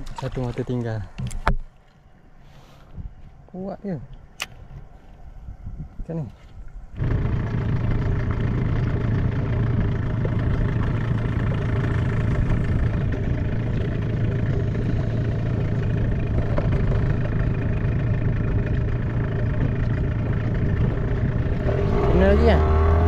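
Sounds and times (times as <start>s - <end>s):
outboard motor running: 6.8s - 23.0s.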